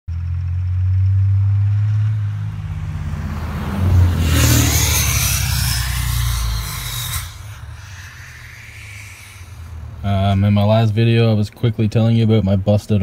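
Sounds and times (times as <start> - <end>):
pickup truck engine revving: 0.1 - 10.6
rush of noise with falling whine: 0.3 - 10.6.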